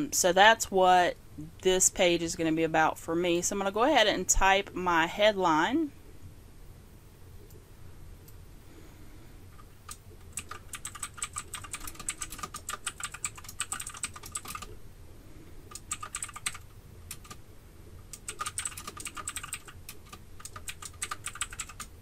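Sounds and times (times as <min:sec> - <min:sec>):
computer keyboard typing: 0:09.6 - 0:14.8, 0:15.7 - 0:17.4, 0:18.1 - 0:22.0.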